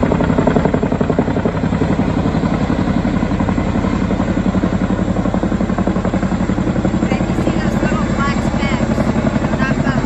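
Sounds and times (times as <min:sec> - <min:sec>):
helicopter rotors beating: 0:00.0 - 0:10.0.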